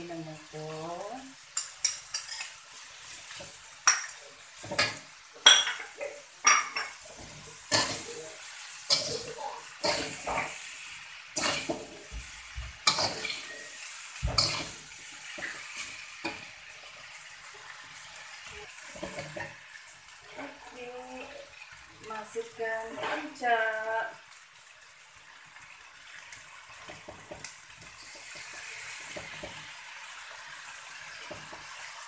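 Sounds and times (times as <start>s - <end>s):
faint sizzle: 0.0s - 32.0s
metal spatula scraping a wok: 1.6s - 3.6s, 6.8s - 10.8s, 11.4s - 12.1s, 12.8s - 17.2s.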